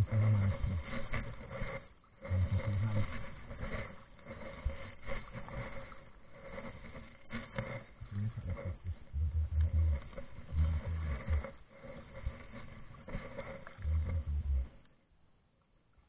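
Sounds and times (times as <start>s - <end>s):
short low rumbles: 0.0s - 1.4s, 2.2s - 3.6s, 7.9s - 11.6s, 13.8s - 14.9s
paddle strokes in water: 0.0s - 15.0s.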